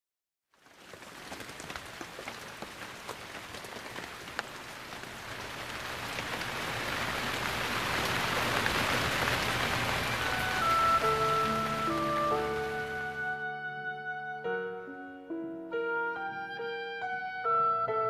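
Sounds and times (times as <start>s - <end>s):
raindrop ticks: 0.5s - 12.9s
rain falling: 0.5s - 13.6s.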